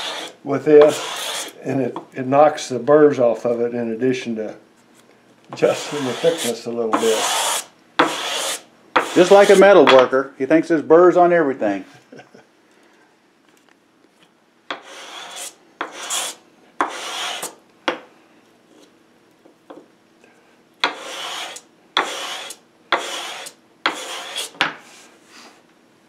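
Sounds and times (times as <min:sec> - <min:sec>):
sandpaper rubbing on wood: 0:00.0 - 0:01.6, 0:05.6 - 0:09.6, 0:14.8 - 0:17.5, 0:20.9 - 0:24.5.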